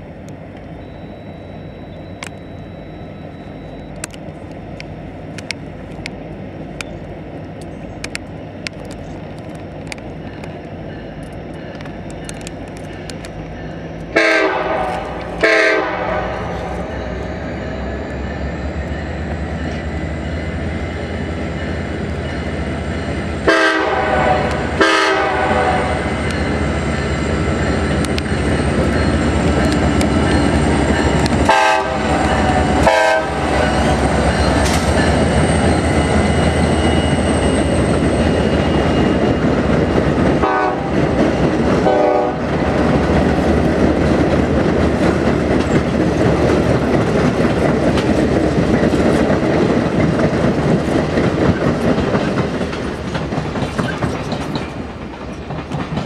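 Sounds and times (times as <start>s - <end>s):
train wheels clicking on rails: 0.0s - 56.0s
train horn blasts: 14.1s - 17.4s, 23.4s - 26.2s, 31.4s - 34.0s, 40.4s - 41.1s, 41.8s - 42.8s.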